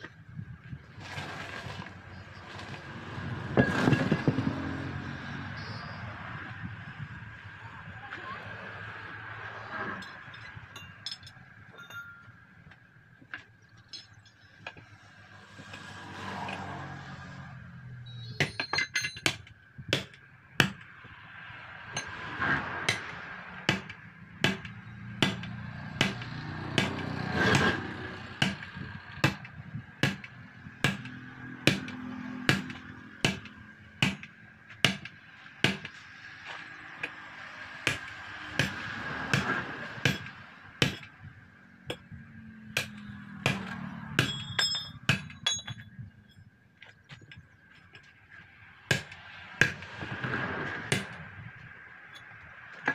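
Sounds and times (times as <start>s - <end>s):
metallic clinking: 10.0s - 12.5s, 13.8s - 14.7s, 18.2s - 19.4s, 44.2s - 46.6s.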